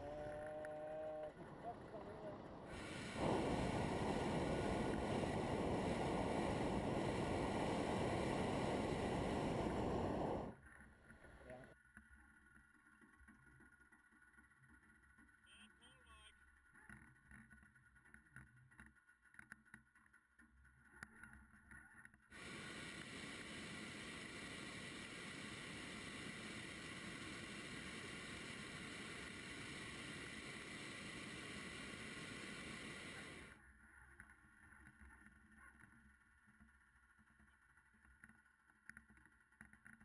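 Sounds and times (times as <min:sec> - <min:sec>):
faint wind: 0:00.0 - 0:10.6, 0:22.4 - 0:33.6
propane burner blast: 0:02.6 - 0:10.6, 0:22.4 - 0:33.6.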